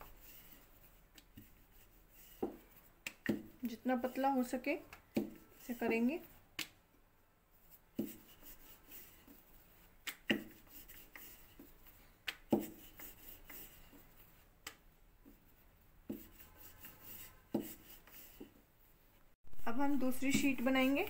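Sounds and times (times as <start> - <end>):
rolling pin rubbing on dough: 0.0 - 6.3, 7.6 - 14.5, 15.2 - 18.6.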